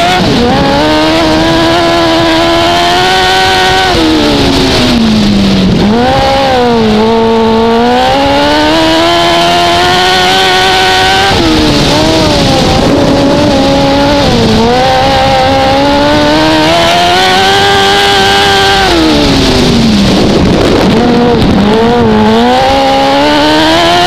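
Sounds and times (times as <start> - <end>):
racing motorcycle engine revving: 0.0 - 24.0.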